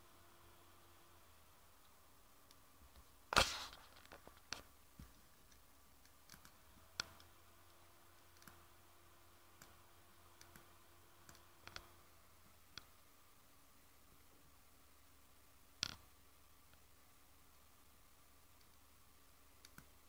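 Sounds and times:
faint steady hum: 0.0 - 20.0
computer mouse clicking: 4.1 - 7.3, 8.2 - 8.6, 9.6 - 9.8, 10.4 - 11.9, 19.6 - 20.0.

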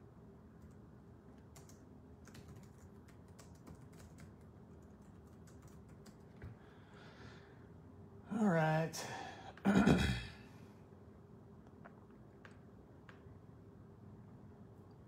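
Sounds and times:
low steady hum: 0.0 - 15.0
typing on computer keyboard: 0.6 - 6.5.

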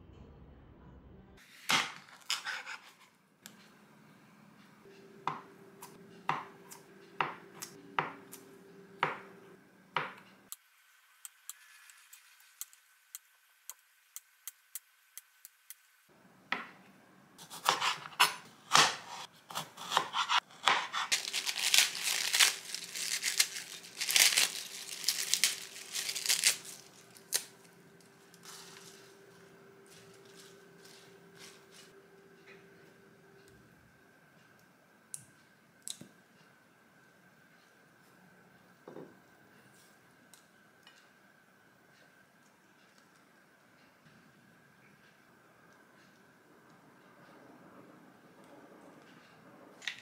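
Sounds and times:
lettuce leaves being torn: 19.9 - 29.1.

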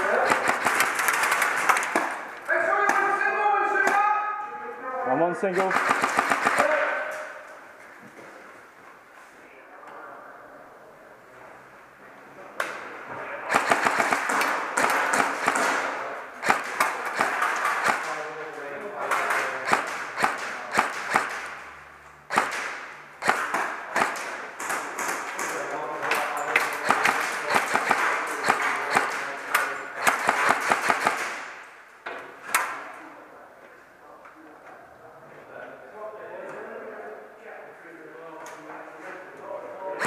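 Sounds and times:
loud gun cracks: 0.0 - 2.3, 5.6 - 7.3, 13.5 - 18.2, 19.1 - 21.6, 22.3 - 25.6, 26.6 - 31.6
airsoft gunshots snapping: 5.6 - 7.2, 13.5 - 15.8, 16.4 - 18.1, 19.2 - 21.6, 22.3 - 24.4, 30.0 - 31.5.

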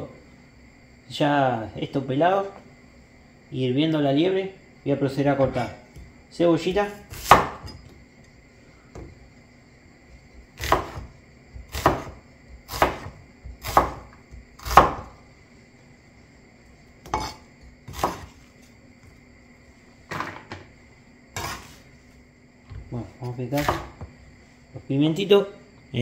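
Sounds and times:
cleaver chopping on wooden board: 6.8 - 7.8, 10.6 - 15.2, 17.0 - 18.3, 23.6 - 24.1.

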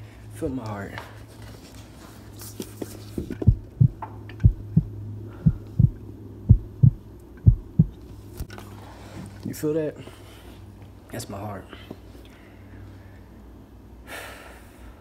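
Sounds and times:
steady low hum: 0.0 - 15.0
heartbeat thumps: 3.4 - 8.0.

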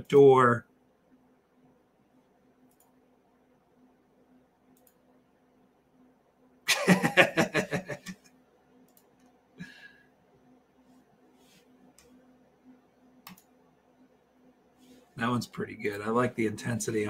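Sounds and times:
man laughing: 6.7 - 8.2.

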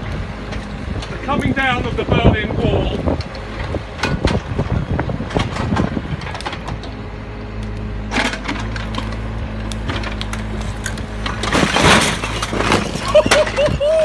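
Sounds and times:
excavator engine running: 0.0 - 14.0
bucket scraping against bricks: 11.3 - 13.7.

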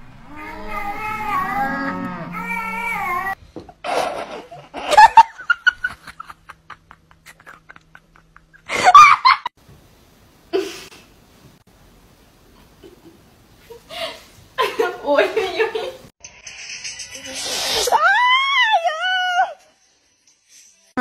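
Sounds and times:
person laughing: 3.8 - 9.5.

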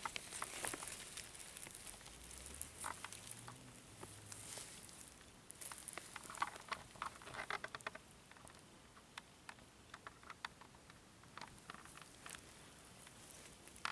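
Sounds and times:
plastic bag rustling: 0.0 - 3.5.

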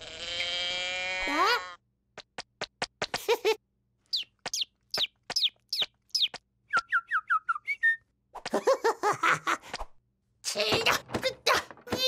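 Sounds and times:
cartoon bird chirps: 4.1 - 8.0
falling whistles: 6.7 - 8.0.

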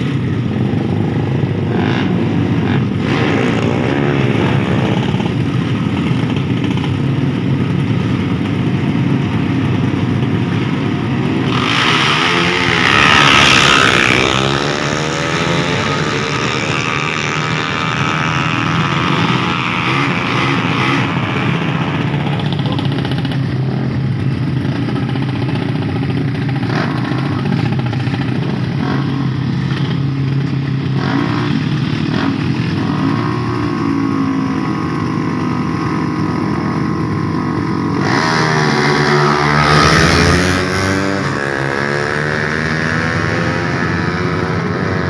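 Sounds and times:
motorcycle engines revving: 0.0 - 45.0.

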